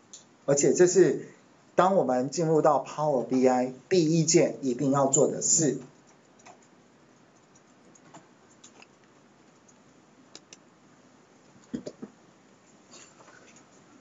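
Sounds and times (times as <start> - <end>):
keyboard and mouse clicks: 6.0 - 10.7, 11.6 - 12.2.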